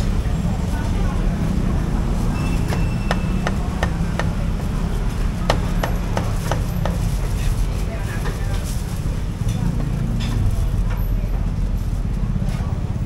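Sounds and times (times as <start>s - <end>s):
cleaver chopping on wooden block: 2.7s - 4.4s, 5.4s - 7.1s.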